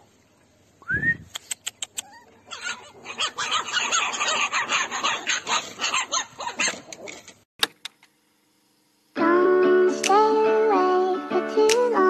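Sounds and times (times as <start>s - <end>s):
music: 9.2s - 12.0s.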